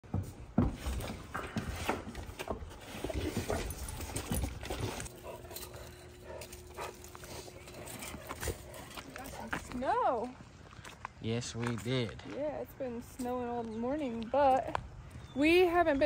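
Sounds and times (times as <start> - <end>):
dogs making eager noises: 2.8 - 9.8.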